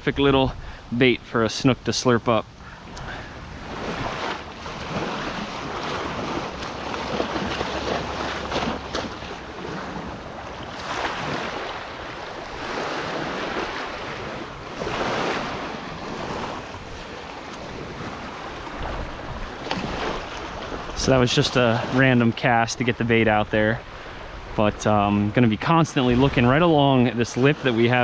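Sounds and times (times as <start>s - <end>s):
wind buffeting microphone: 2.4s - 28.0s
small waves washing over sand: 2.6s - 23.0s, 23.8s - 28.0s.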